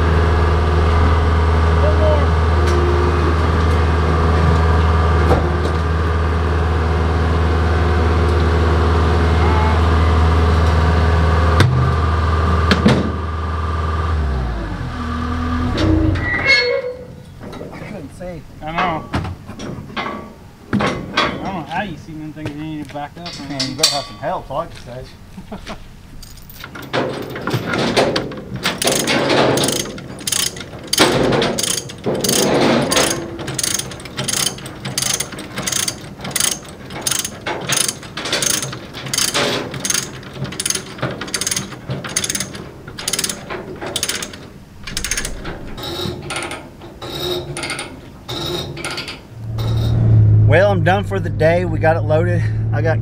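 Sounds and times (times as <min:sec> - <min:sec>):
ratchet strap pawl clicking: 0:28.8 - 0:45.4.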